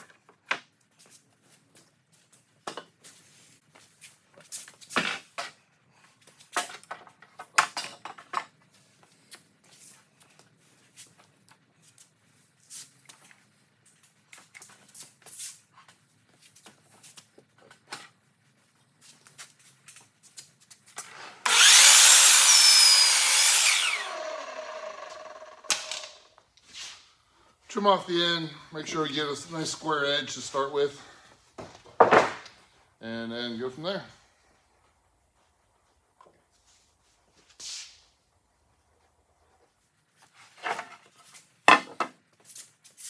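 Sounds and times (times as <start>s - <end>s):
miter saw cutting a board: 21.4s - 26.0s
saw blade winding down whine: 21.4s - 26.3s.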